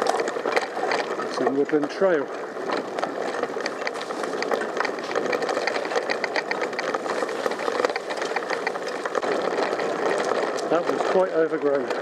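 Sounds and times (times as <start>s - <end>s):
bicycle rattling over rough trail: 0.0s - 12.0s.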